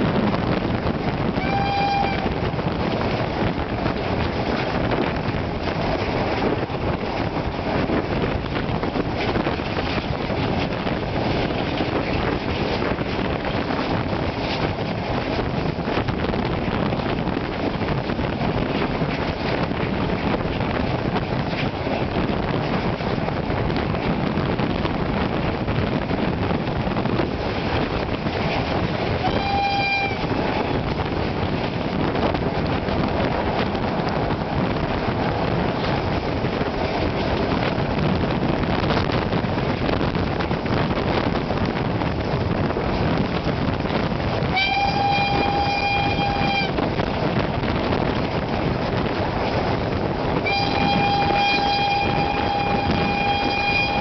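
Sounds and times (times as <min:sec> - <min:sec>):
rush of moving train: 0:00.0 - 0:54.0
wind: 0:00.0 - 0:54.0
steam locomotive whistle: 0:01.4 - 0:02.4, 0:29.2 - 0:30.3, 0:44.5 - 0:46.8, 0:50.4 - 0:54.0.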